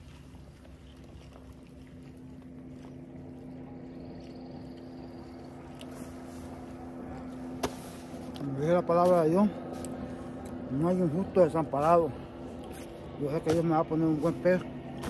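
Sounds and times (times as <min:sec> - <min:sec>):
boat motor humming: 0:00.0 - 0:15.0.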